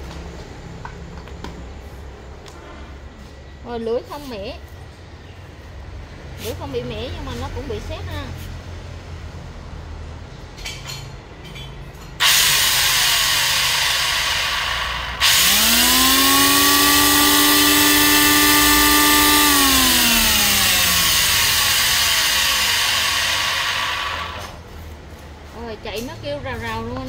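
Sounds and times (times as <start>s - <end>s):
electric hand planer whining: 12.2s - 24.6s.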